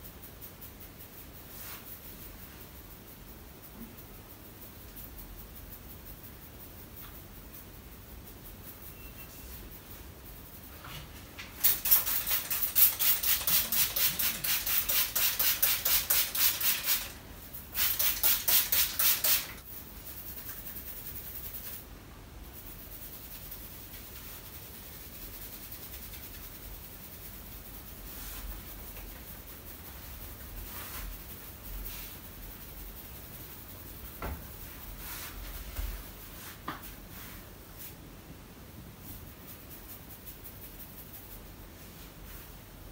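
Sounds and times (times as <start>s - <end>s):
fingers rubbing through hair: 0.0s - 38.0s, 39.0s - 42.7s.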